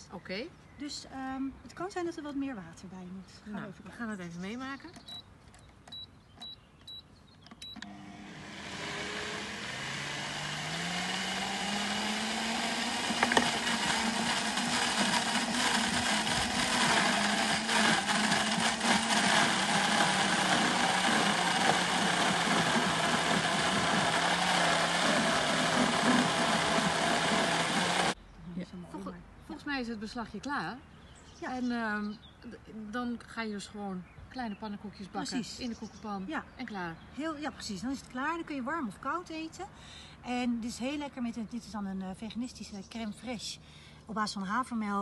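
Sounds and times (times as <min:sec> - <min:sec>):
blender beeps: 0:07.6 - 0:28.2
blender motor running: 0:07.8 - 0:28.2.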